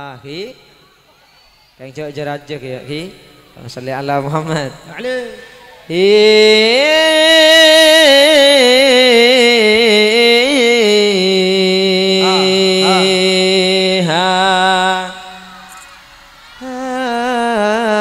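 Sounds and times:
man singing into a microphone: 5.9s - 15.5s, 16.6s - 18.0s.

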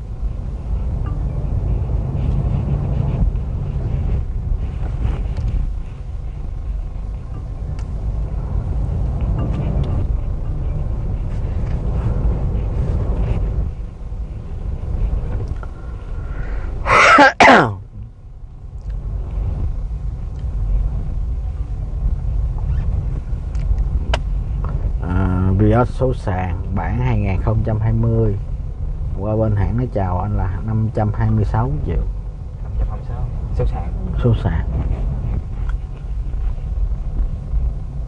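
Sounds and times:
car cabin rumble: 0.0s - 38.0s
person sneezing loudly: 16.8s - 17.8s.

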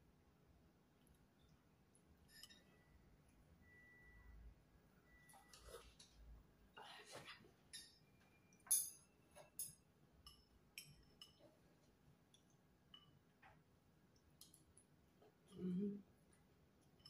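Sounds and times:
utensils clinking against bowl: 2.3s - 2.7s, 8.6s - 11.5s.

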